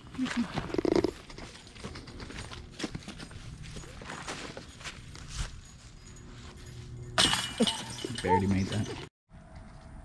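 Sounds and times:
footsteps crunching on dry leaves: 2.4 - 5.7.

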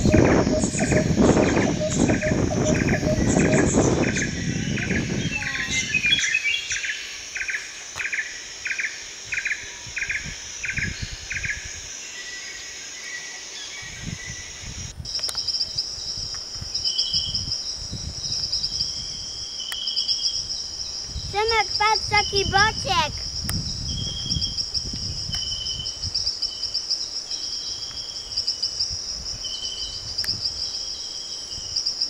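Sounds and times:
wind rumble on microphone: 0.0 - 6.4, 9.2 - 12.0, 13.7 - 26.5, 27.7 - 32.0
bird chirping: 0.0 - 11.6
high insect trill: 0.0 - 32.0.

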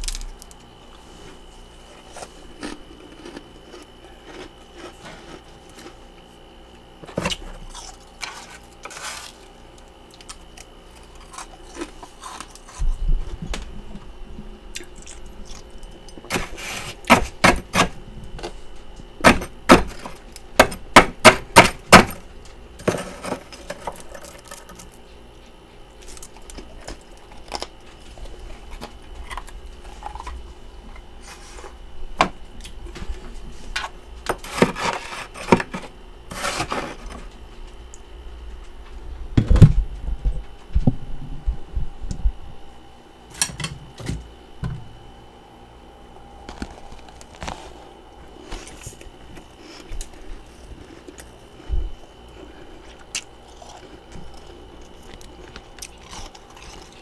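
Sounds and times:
metal spoon scraping frost: 8.2 - 9.5, 34.4 - 37.1.

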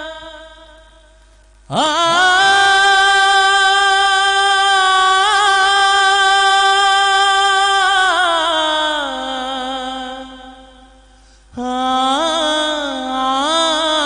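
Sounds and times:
person chanting a long high note: 0.0 - 14.0.

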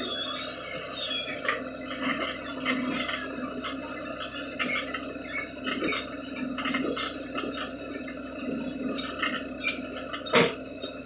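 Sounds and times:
steady high-pitched tone: 0.0 - 11.0.

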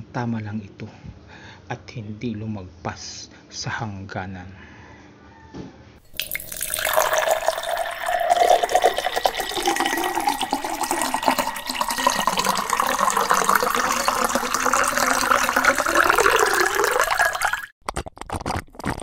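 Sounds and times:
liquid pouring into container: 6.0 - 17.7.

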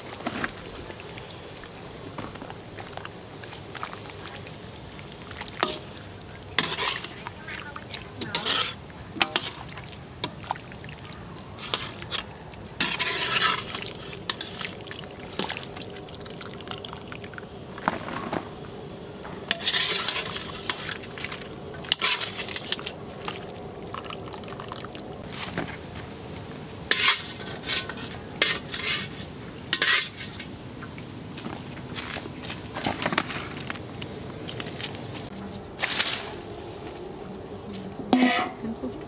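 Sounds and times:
water simmering: 0.0 - 17.9, 18.5 - 32.5
metal utensils clinking in a wok: 6.6 - 7.2, 8.2 - 9.6, 26.9 - 29.1, 38.1 - 38.7.

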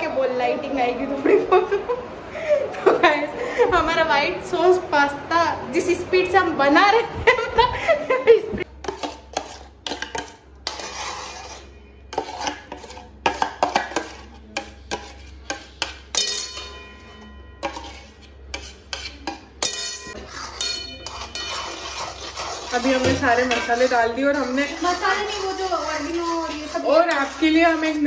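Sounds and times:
steel spoon clinking on pan: 11.8 - 28.0.

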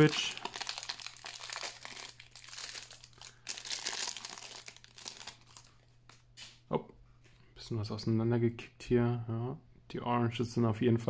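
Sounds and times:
foil wrapper crinkling: 0.0 - 5.8.

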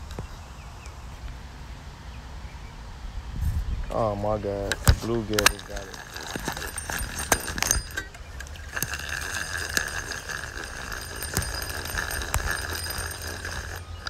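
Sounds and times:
fishing reel whirring and clicking: 4.7 - 14.0.

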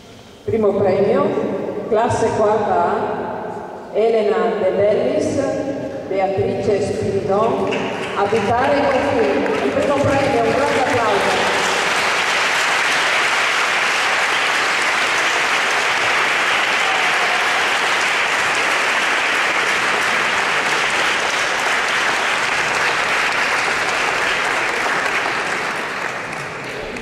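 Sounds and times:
audience applauding: 7.7 - 27.0.

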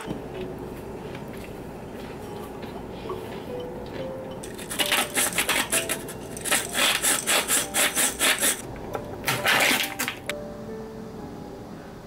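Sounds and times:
cucumber rasping on a hand grater: 6.4 - 8.6.

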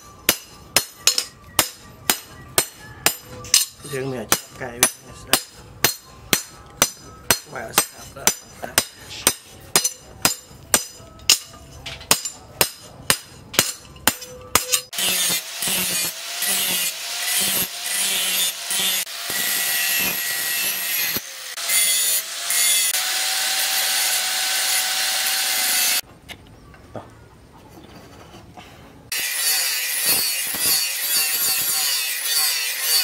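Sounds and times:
hammer striking steel on anvil: 0.0 - 22.8
angle grinder grinding steel: 13.6 - 26.0, 29.1 - 33.0.

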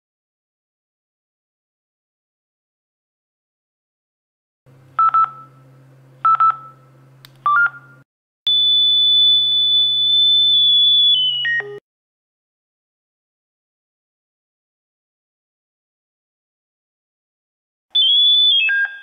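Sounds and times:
low electronic hum: 4.7 - 8.0.

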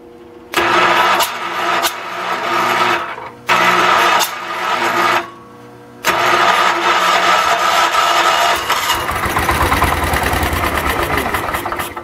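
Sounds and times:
engine being cranked: 6.2 - 12.0.

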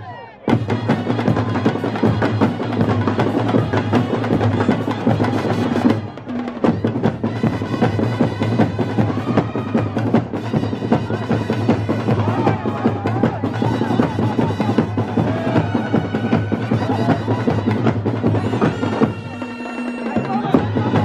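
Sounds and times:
drums beating fast: 0.5 - 21.0
trumpets and horns playing: 0.5 - 21.0.

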